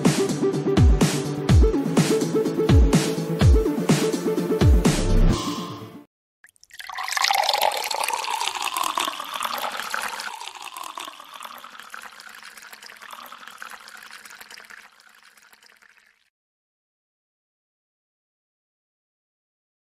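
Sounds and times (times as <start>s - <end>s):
water pouring into a glass: 6.4s - 16.3s.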